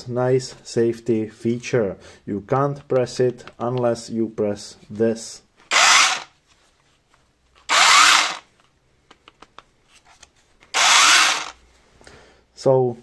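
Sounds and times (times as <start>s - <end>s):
cordless chainsaw whining: 5.7s - 6.3s, 7.7s - 8.5s, 10.7s - 11.6s.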